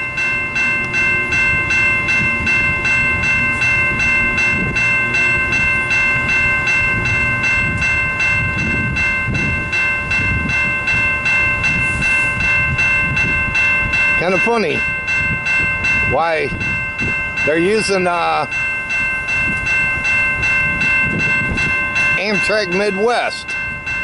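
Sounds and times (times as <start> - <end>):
bell ringing rapidly: 0.0 - 24.0
diesel locomotives idling: 0.0 - 24.0.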